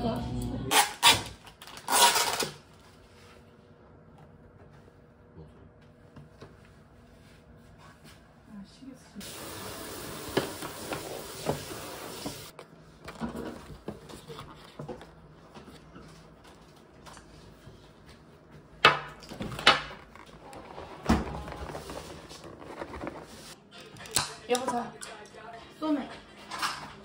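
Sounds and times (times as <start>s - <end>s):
objects being handled: 19.2s - 24.2s.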